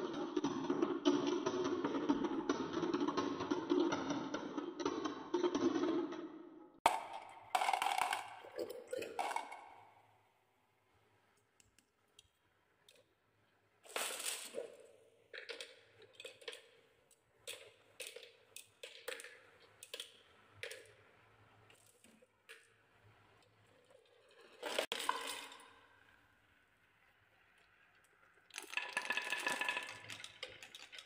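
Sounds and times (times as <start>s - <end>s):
marbles knocking on wooden track: 0.0s - 10.0s, 17.5s - 21.1s, 28.5s - 31.0s
marbles clattering: 6.9s - 9.9s, 13.9s - 16.8s, 24.5s - 25.9s, 28.5s - 31.0s.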